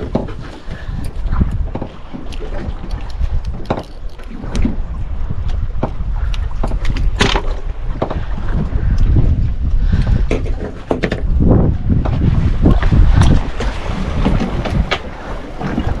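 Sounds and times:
low rumble of wind and sea: 0.0s - 16.0s
sharp clicks and knocks: 1.0s - 4.7s.

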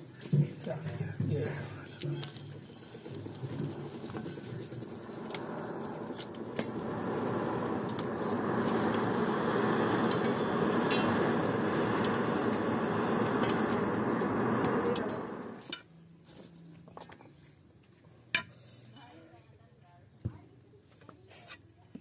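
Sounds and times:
faint fire crackles: 0.0s - 16.7s
forge blower air rush: 1.0s - 15.7s.

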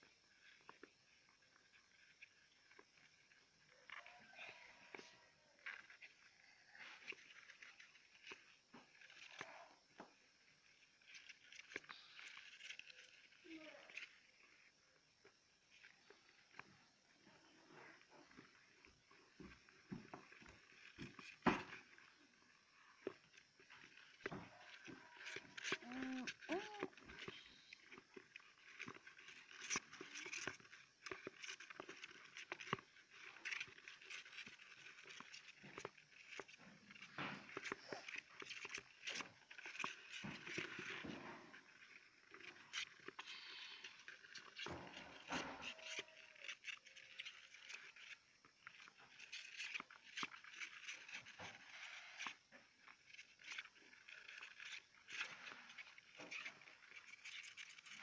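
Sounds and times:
small claws scratching plastic: 20.2s - 58.0s.

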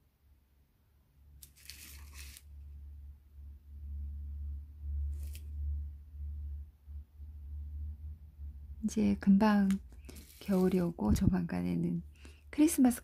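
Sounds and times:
paper scraping on table: 1.4s - 2.5s, 5.1s - 5.5s, 10.0s - 11.0s.

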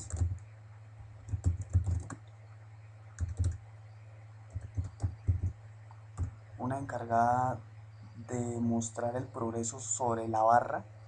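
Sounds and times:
typing on keyboard: 0.0s - 0.4s, 1.3s - 2.2s, 3.2s - 3.6s, 4.5s - 5.6s.

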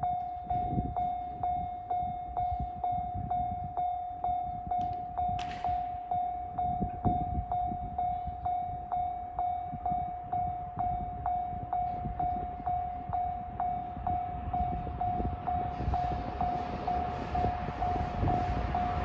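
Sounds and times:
approaching train rush: 10.4s - 19.0s.

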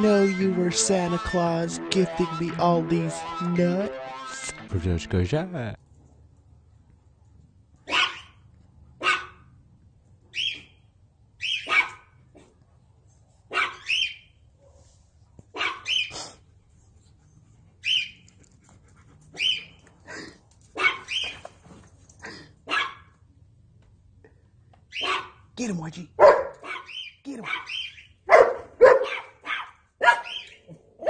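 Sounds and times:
dog barking: 7.9s - 8.4s, 9.0s - 9.5s, 11.5s - 12.5s, 13.5s - 13.9s, 15.5s - 16.1s, 20.8s - 21.3s, 22.6s - 23.1s, 25.0s - 25.4s, 26.2s - 31.0s.

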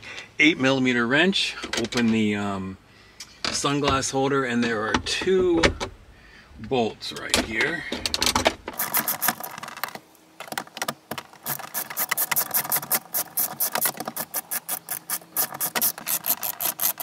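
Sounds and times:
wrench ratcheting: 8.7s - 9.9s, 11.4s - 17.0s.

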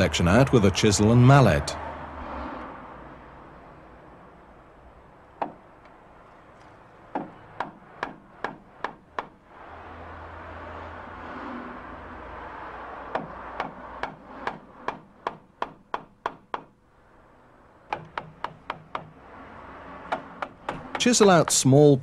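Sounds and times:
mallet striking chisel: 5.4s - 5.7s, 7.1s - 9.4s, 13.1s - 16.8s, 17.9s - 19.2s, 20.1s - 21.2s.

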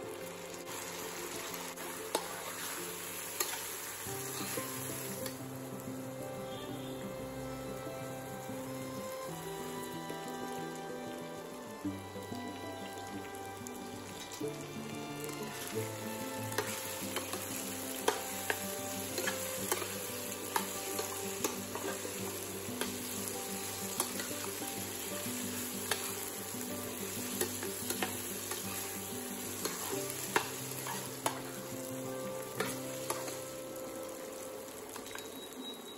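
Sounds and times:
food sizzling in oil in a pan: 0.0s - 35.9s
spatula stirring and scraping: 25.4s - 26.4s, 27.1s - 31.5s.

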